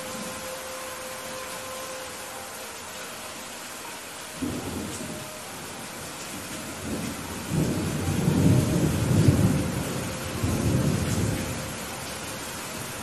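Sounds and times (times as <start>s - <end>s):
steady rain hiss: 0.0s - 13.0s
rolling thunder rumble: 6.3s - 12.0s.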